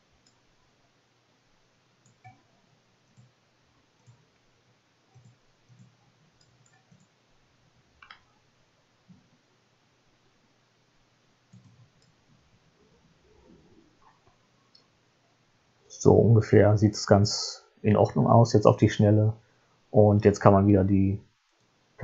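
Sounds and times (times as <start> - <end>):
computer mouse clicks: 2.0 - 2.5, 3.1 - 3.3, 4.0 - 4.3, 5.1 - 7.2, 8.0 - 8.3, 11.5 - 12.3.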